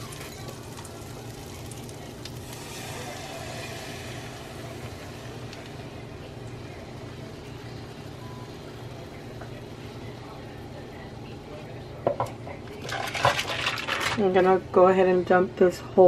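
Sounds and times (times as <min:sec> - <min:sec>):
cream pouring: 0:00.0 - 0:06.1
butter and garlic sizzling in pan: 0:00.0 - 0:10.4
steady low hum: 0:00.0 - 0:12.9.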